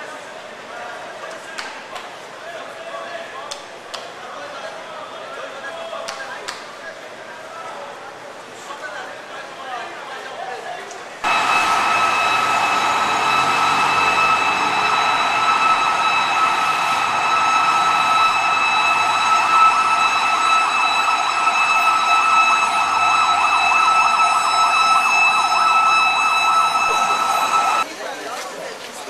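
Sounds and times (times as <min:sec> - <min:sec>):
ambulance siren wailing: 0:11.2 - 0:27.9
road traffic: 0:11.2 - 0:27.9.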